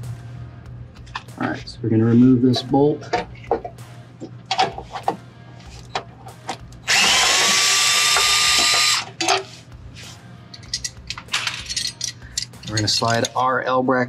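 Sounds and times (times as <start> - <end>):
cordless drill motor whine: 6.9 - 9.1
tool handling clicks: 10.5 - 13.4.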